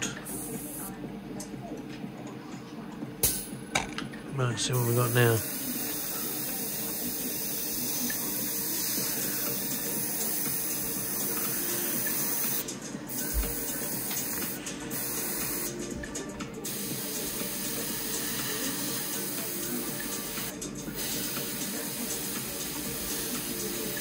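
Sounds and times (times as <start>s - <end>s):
airbrush spraying hiss: 4.8s - 15.9s, 16.6s - 24.0s.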